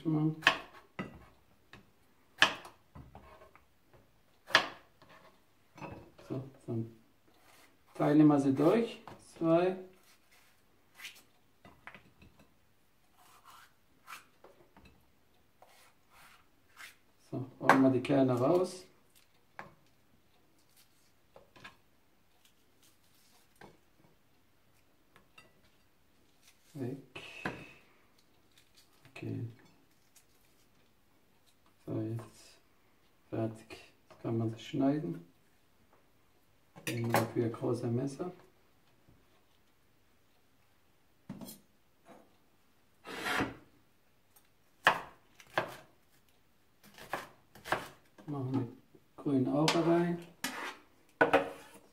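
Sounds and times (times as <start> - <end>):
knife scraping board: 4.5 - 5.4, 7.4 - 8.0, 10.0 - 11.2, 13.1 - 14.3, 15.6 - 17.0, 43.0 - 43.6, 46.8 - 48.0, 49.7 - 51.9
knife cutting on plastic board: 46.8 - 48.1, 49.8 - 51.9.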